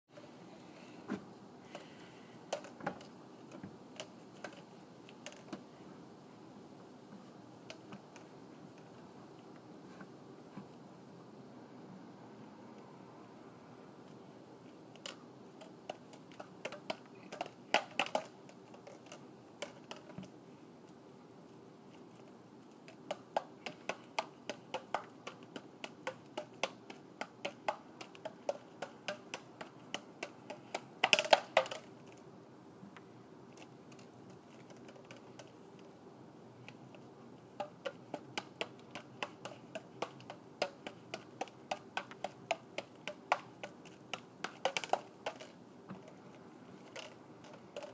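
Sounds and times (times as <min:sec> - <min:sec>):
juggling clubs slapping into hands: 0:23.0 - 0:31.9, 0:37.6 - 0:45.5.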